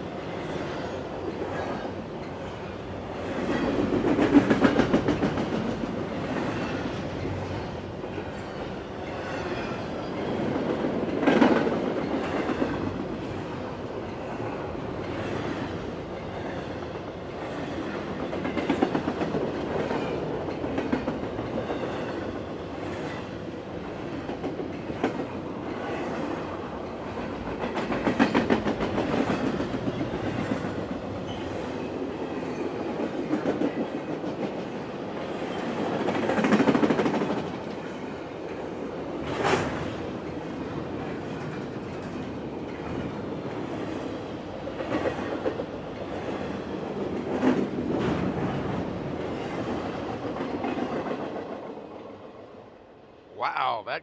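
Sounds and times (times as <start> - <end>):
train wheels clacking over rail joints: 3.2 - 7.5, 8.3 - 13.4, 17.4 - 23.3, 23.9 - 31.5, 32.5 - 38.0.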